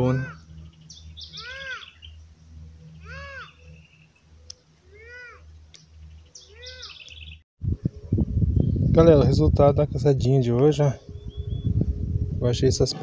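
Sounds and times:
animal calling: 0:00.0 - 0:02.2, 0:02.9 - 0:04.1, 0:06.3 - 0:07.2.

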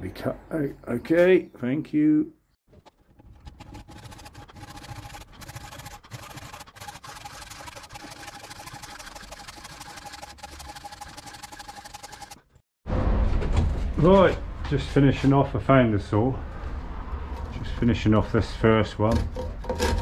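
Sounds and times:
handsaw rasping through wood: 0:03.4 - 0:12.4, 0:19.2 - 0:20.0.

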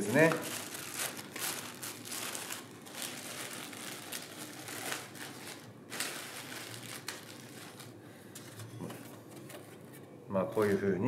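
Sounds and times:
plastic wrapping crinkling: 0:00.0 - 0:08.0.

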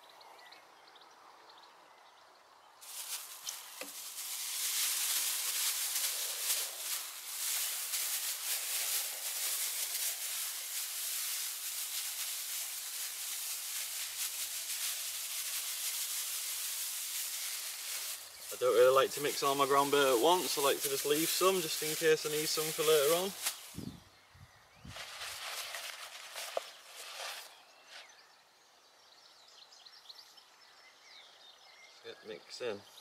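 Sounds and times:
crumbs pouring into a bowl: 0:02.8 - 0:23.8
bag rustling: 0:02.8 - 0:24.0, 0:24.9 - 0:27.6.

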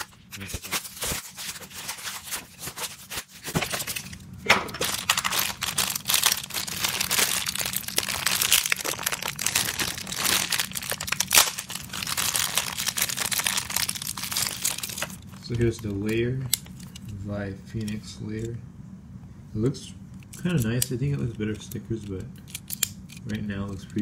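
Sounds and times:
plastic packaging crinkling: 0:00.0 - 0:17.0
plastic cracking: 0:03.5 - 0:17.0.

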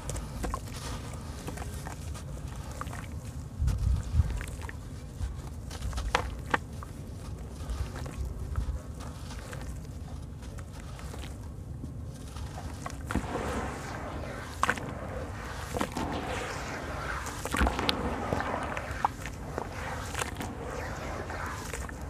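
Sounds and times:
sharp crackles: 0:12.4 - 0:22.0
wet sand squished in water: 0:12.4 - 0:22.0.

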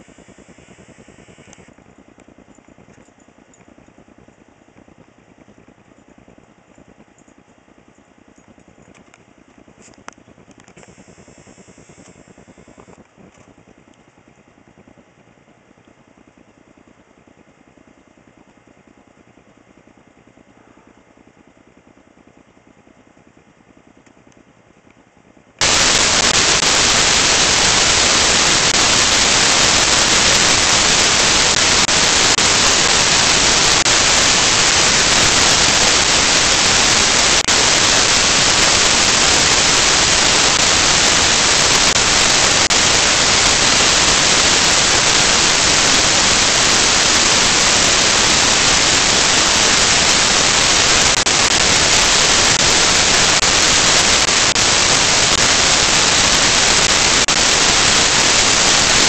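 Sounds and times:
loud static hiss: 0:00.0 - 0:02.4, 0:08.9 - 0:13.7, 0:25.6 - 0:59.0.

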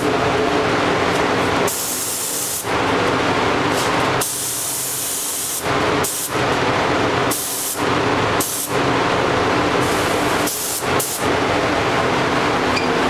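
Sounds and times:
ventilation hum: 0:00.0 - 0:13.0
spray gun hissing: 0:01.6 - 0:02.7, 0:03.7 - 0:06.3, 0:07.3 - 0:07.8, 0:08.4 - 0:08.8, 0:09.8 - 0:11.2.

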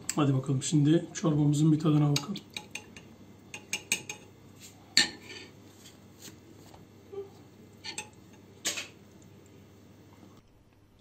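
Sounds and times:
metal spoon clinking on ceramic bowl: 0:02.6 - 0:04.3.

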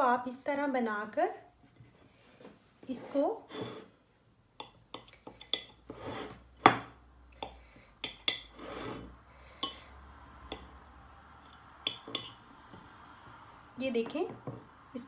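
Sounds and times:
knife clinking on ceramic plate: 0:04.6 - 0:09.0, 0:11.9 - 0:12.4.

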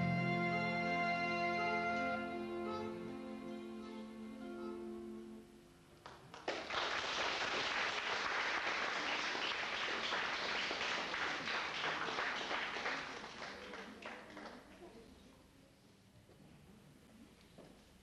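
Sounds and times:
audience applauding: 0:06.0 - 0:14.8.

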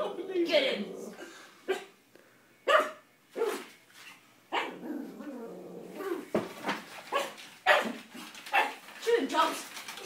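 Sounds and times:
dog growling: 0:00.2 - 0:01.3, 0:04.6 - 0:06.3
small dog barking: 0:01.7 - 0:01.9, 0:02.7 - 0:03.7, 0:04.5 - 0:04.8, 0:07.1 - 0:08.8.

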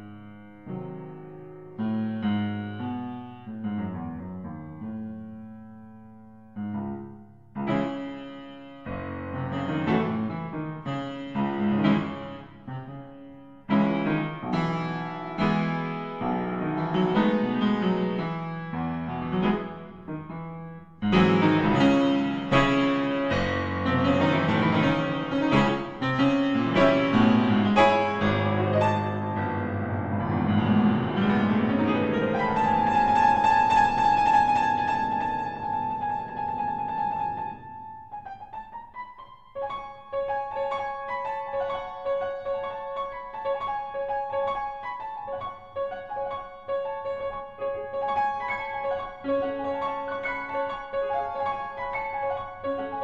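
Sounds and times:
slow piano chords: 0:00.0 - 0:53.0.

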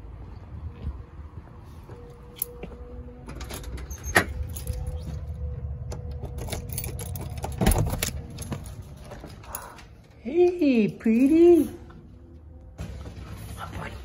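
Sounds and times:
keys jangling: 0:03.3 - 0:09.8.

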